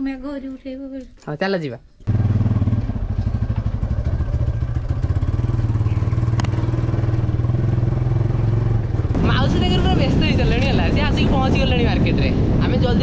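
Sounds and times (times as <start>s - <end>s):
motorbike engine running: 2.1s - 10.2s.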